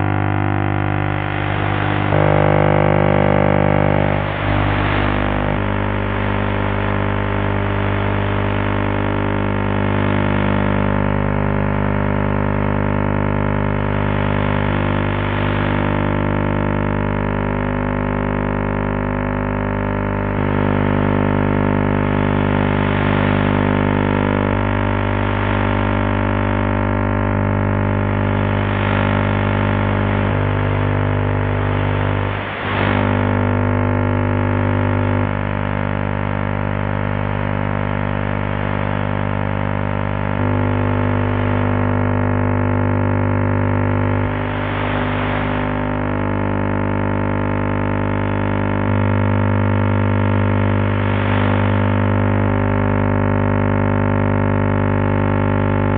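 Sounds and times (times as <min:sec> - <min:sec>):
droning buzz of stacked tones: 0:00.0 - 0:55.9.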